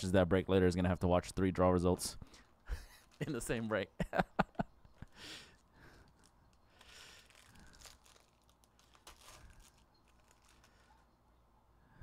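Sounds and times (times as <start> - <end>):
plastic wrap crinkling and tearing: 2.9 - 3.5, 6.0 - 11.1.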